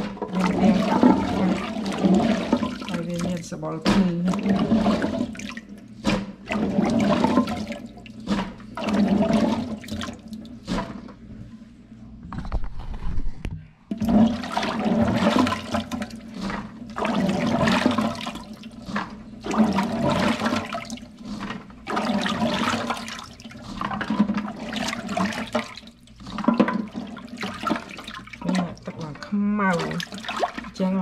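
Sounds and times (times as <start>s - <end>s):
hands splashing water in sink: 0.0s - 11.1s, 13.9s - 30.8s.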